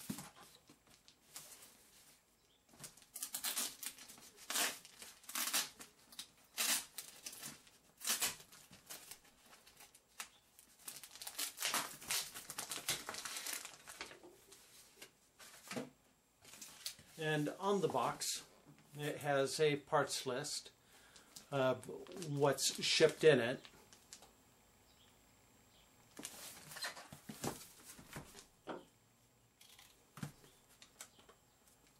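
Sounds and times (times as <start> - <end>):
plastic wrap crinkling: 2.8 - 14.6.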